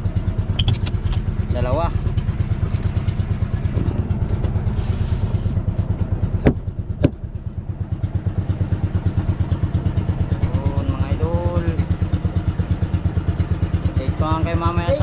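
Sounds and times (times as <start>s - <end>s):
boat engine thudding: 0.0s - 15.0s
sharp knocks: 6.4s - 7.3s.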